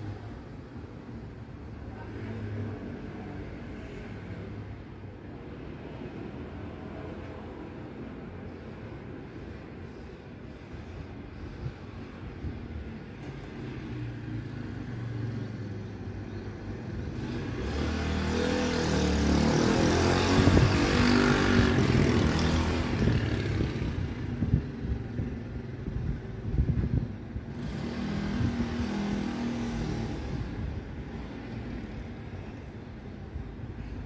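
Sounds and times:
vehicle engine passing by: 17.1 - 24.6.

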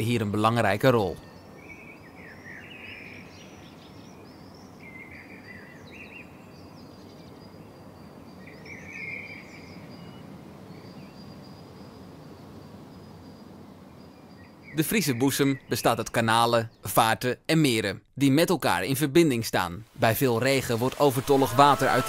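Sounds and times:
birds chirping: 0.0 - 17.9, 19.6 - 22.0
low background noise: 0.0 - 22.0.

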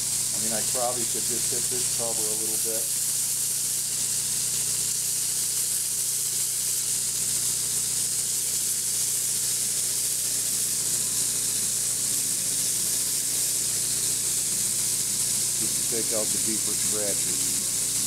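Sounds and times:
sanding hiss: 8.2 - 18.0
belt sander humming: 9.6 - 18.0.

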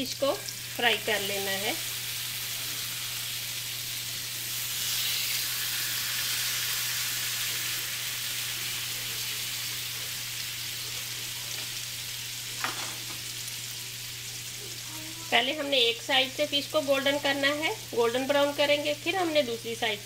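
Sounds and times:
fish sizzling on a griddle: 0.0 - 20.0.

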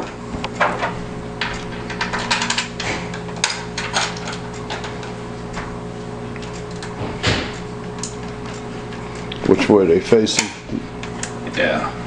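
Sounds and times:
metal parts clicking and tapping: 1.4 - 5.1.

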